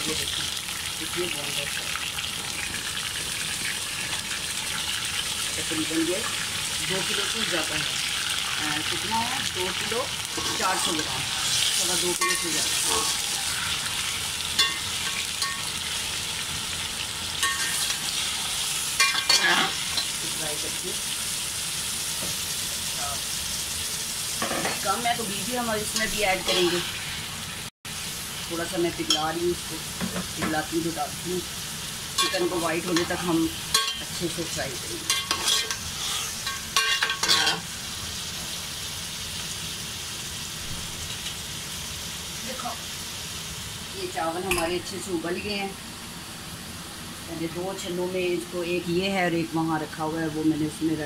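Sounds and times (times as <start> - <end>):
chicken sizzling in oil: 0.0 - 51.0
metal spoon scraping a pot: 10.4 - 15.7, 19.0 - 20.2, 26.0 - 26.9, 35.1 - 37.6.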